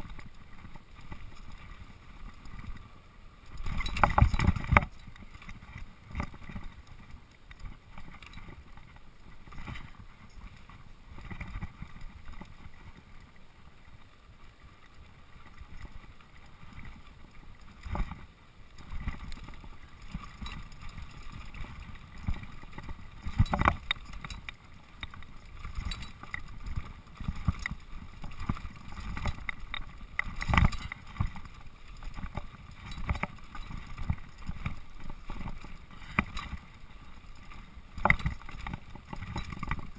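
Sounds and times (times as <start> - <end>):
wind: 0.0 - 39.9
bike parts rattling: 27.5 - 31.2.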